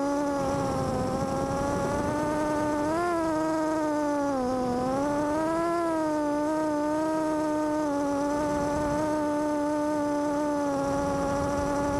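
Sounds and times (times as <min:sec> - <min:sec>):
quadcopter propellers buzzing: 0:00.0 - 0:11.9.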